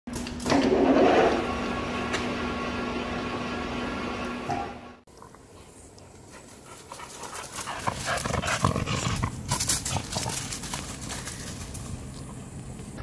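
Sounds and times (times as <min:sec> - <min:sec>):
dog panting: 0:05.5 - 0:11.4
steps crunching on gravel: 0:06.5 - 0:12.4.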